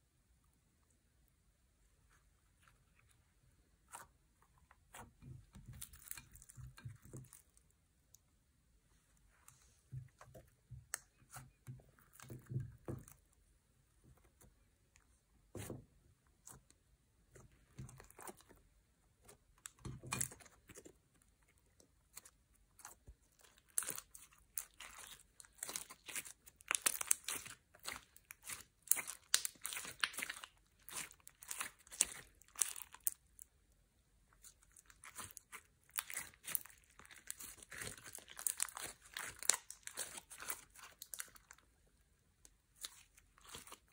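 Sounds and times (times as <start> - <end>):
slime crackling and popping: 22.0 - 33.5, 34.4 - 41.7.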